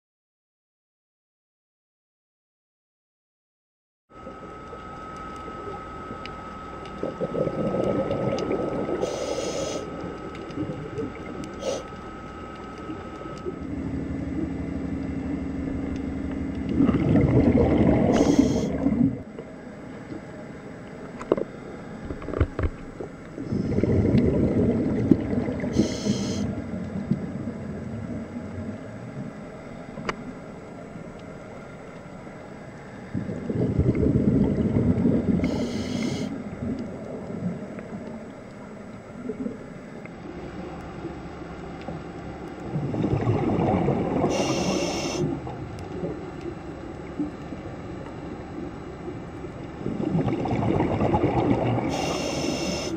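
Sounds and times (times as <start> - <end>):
thin whine: 4.1 - 52.9
bubbling underwater exhalations: 7.0 - 11.9, 16.6 - 19.3, 23.4 - 28.3, 33.1 - 37.7, 42.6 - 46.2, 49.7 - 52.9.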